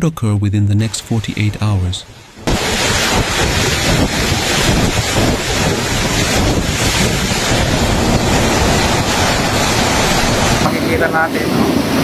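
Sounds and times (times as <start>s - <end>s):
driving rain: 1.1s - 12.0s
strong wind: 2.2s - 12.0s
wind buffeting microphone: 2.4s - 12.0s.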